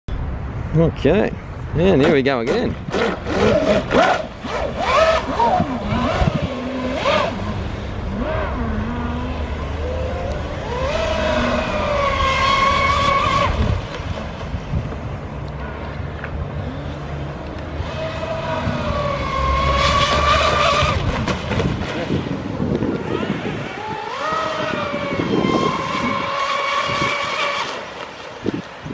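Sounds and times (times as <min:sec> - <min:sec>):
electric motors whining: 0:02.9 - 0:13.8, 0:16.6 - 0:21.2, 0:22.6 - 0:28.2.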